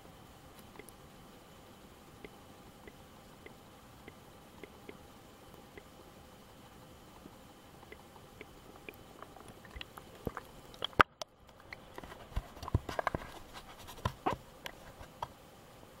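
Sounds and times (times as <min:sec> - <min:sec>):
water splashing: 0:07.9 - 0:12.0.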